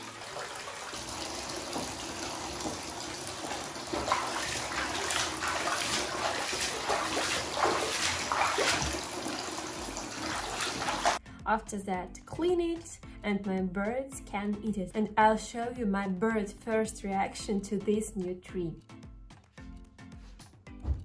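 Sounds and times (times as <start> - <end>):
splashing in water: 0.0 - 11.2
water pouring into bathtub: 0.0 - 11.2.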